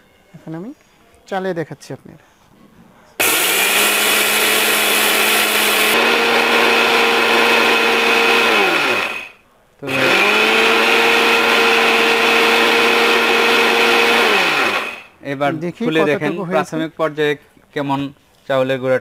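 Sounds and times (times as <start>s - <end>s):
mixer grinder motor whine: 3.2s - 15.2s.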